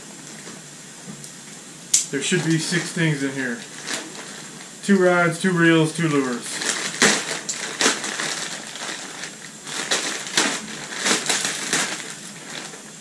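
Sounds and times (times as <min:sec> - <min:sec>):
plastic bag crinkling and ripping: 0:02.1 - 0:05.0, 0:06.0 - 0:13.0.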